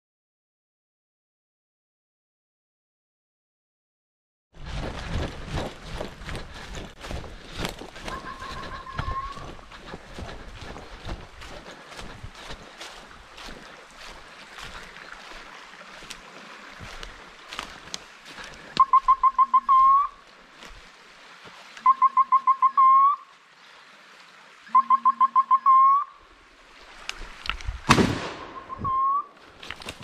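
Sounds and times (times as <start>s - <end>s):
shotgun shot: 27.9s - 28.7s.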